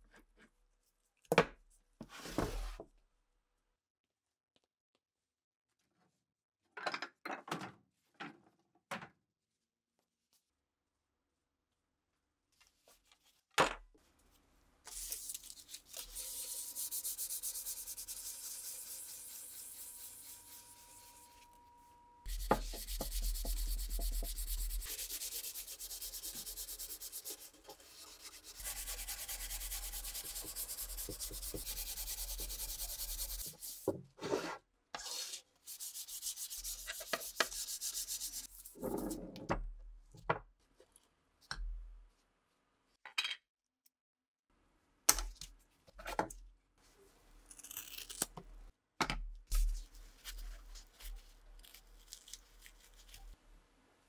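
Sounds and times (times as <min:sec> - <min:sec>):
sandpaper rasping on wood: 0:15.0 - 0:21.4, 0:22.3 - 0:33.8, 0:35.1 - 0:38.6.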